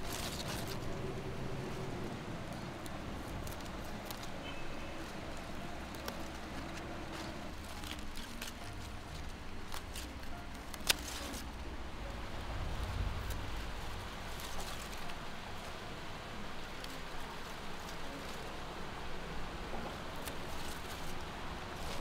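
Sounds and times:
scissors snipping stems: 0.0s - 1.8s, 2.4s - 11.7s, 19.9s - 22.0s
leaves rustling: 0.0s - 22.0s
soft music: 0.0s - 22.0s.

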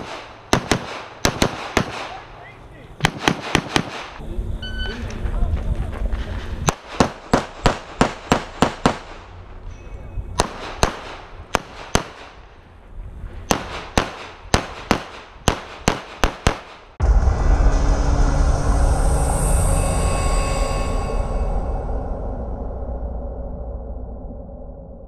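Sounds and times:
rapid pistol shots: 0.0s - 2.3s, 3.0s - 4.2s, 6.7s - 9.2s, 10.4s - 12.4s, 13.5s - 16.9s
logo music: 17.0s - 22.1s.

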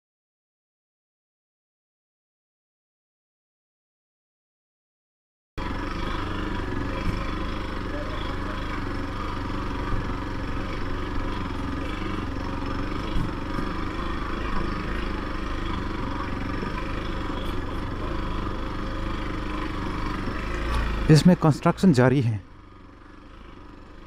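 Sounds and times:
motorcycle engine running: 5.6s - 24.0s.

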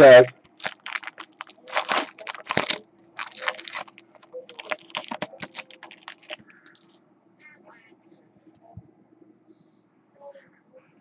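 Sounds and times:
foil wrapper tearing and crinkling: 0.4s - 6.9s.

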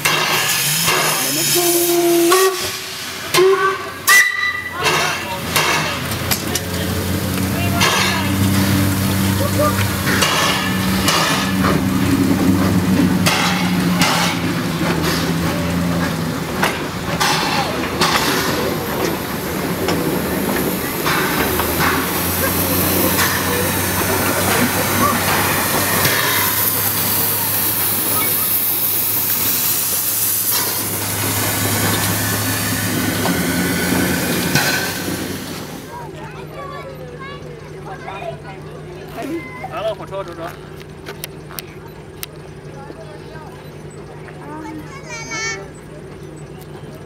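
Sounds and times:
steam hissing: 0.0s - 6.3s, 17.2s - 36.0s
steam locomotive chuffing: 0.0s - 47.0s.

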